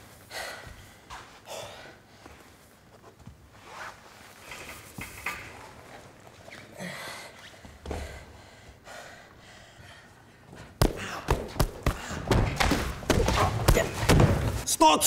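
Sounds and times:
person breathing hard: 0.0s - 2.6s, 6.8s - 12.4s
loud thumps and slams: 10.8s - 14.6s.

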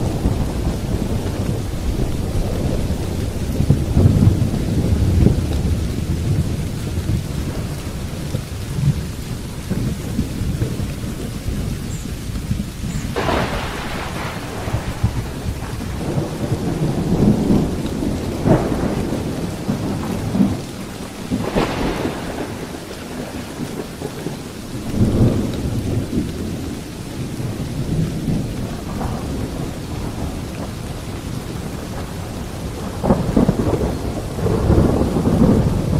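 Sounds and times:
low thunder rumbling: 0.0s - 35.9s
steady rain: 0.0s - 35.9s
sharp thunder peals: 13.0s - 26.6s.

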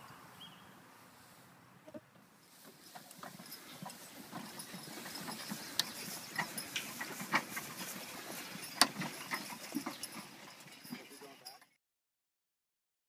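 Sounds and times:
wagon low rumble: 1.8s - 11.7s
harness and wagon clinks: 2.4s - 11.8s.

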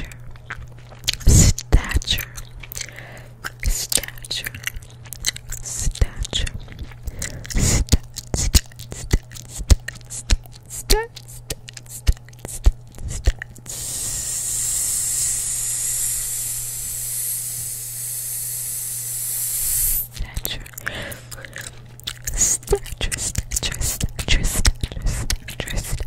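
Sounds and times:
chewing gum clicks and pops: 0.0s - 13.7s, 20.0s - 26.0s
hiss through teeth: 11.9s - 20.2s.

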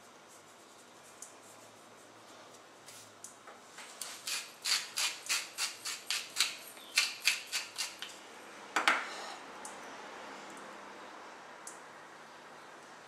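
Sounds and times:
pepper mill grinding: 4.0s - 8.1s.

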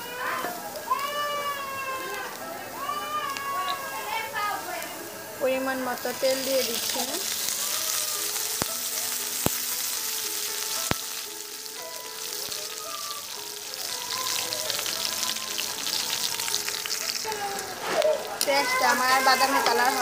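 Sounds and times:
onions sizzling in hot oil: 0.0s - 20.0s.

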